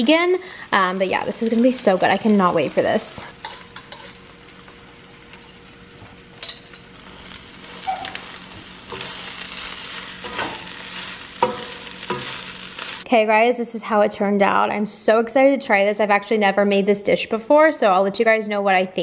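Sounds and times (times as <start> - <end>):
food sizzling in a frying pan: 0.0 - 13.1
spatula stirring: 7.6 - 13.0.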